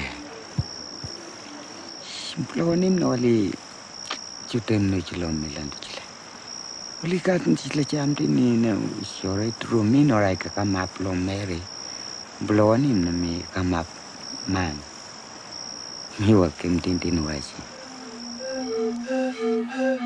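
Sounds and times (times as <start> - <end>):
insect trilling in pulses: 0.0 - 5.7, 6.3 - 20.0
man speaking: 4.5 - 6.0, 7.0 - 11.7, 12.4 - 14.9, 16.2 - 17.7
bamboo flutes playing: 17.6 - 20.0.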